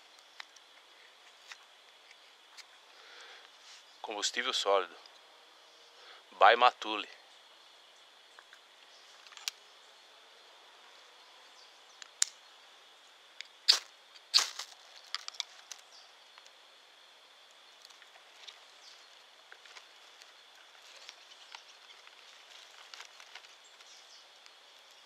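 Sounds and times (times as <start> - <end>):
high insect drone: 0.0 - 25.0
small ticks: 0.1 - 2.8, 17.4 - 25.0.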